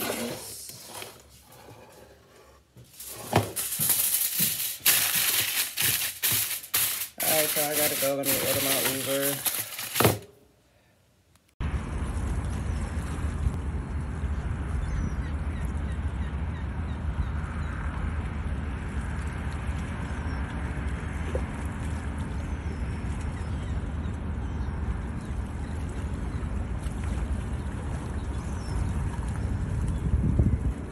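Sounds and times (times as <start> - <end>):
car road and engine noise: 11.6 - 30.1.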